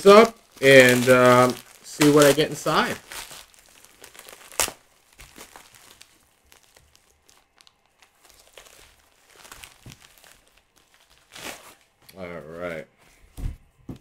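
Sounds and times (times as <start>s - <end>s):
packaging tearing: 0.0s - 11.9s
packaging crinkling and rustling: 0.0s - 12.1s.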